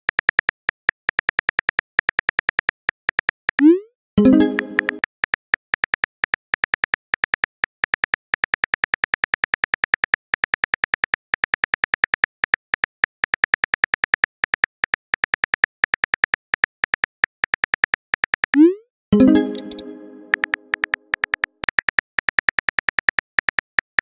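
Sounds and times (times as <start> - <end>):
phone keyboard typing clicks: 0.1 - 5.1, 19.3 - 24.0.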